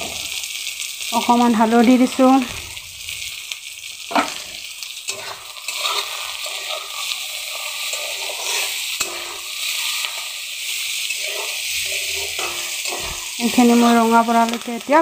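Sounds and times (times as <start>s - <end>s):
onions sizzling in hot oil: 0.0s - 15.0s
spatula scraping a pan: 4.1s - 14.2s.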